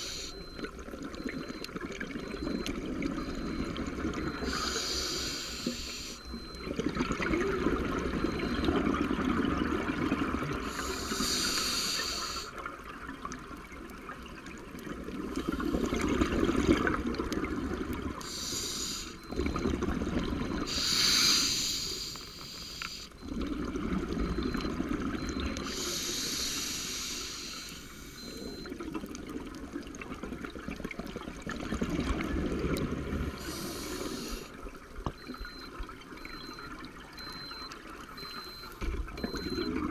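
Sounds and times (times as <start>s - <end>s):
regulator inhale hiss: 0.0s - 0.3s, 4.4s - 6.2s, 10.7s - 12.6s, 18.2s - 19.2s, 20.7s - 23.1s, 25.7s - 28.2s, 33.4s - 34.5s
gurgle of exhaled bubbles: 6.5s - 10.7s, 14.8s - 18.2s, 19.2s - 20.7s, 23.2s - 25.6s, 28.5s - 33.4s.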